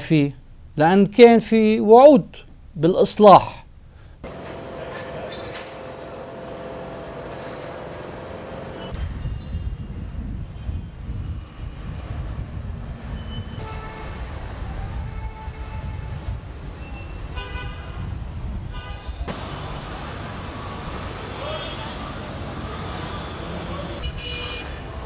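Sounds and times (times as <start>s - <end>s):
passing traffic: 4.2s - 25.0s
car horns: 13.2s - 19.6s, 20.6s - 25.0s.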